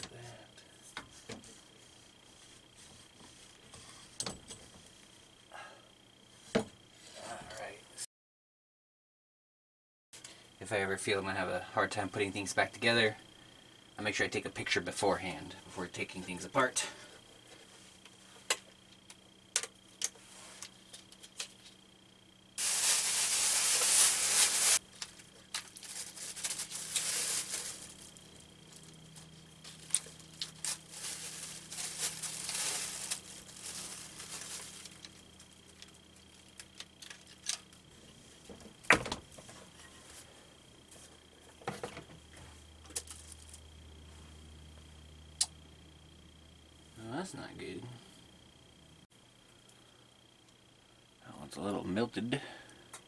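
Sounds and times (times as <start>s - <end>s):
loud hiss: 22.6s - 24.8s, 26.4s - 28.0s
hands rubbing among rubber wires: 22.6s - 35.1s.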